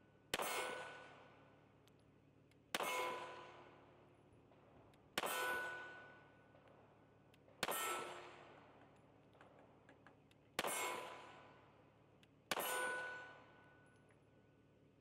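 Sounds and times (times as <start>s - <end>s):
pistol shots: 0.3s - 1.2s, 2.7s - 3.8s, 7.6s - 8.6s, 10.6s - 11.5s, 12.5s - 13.4s.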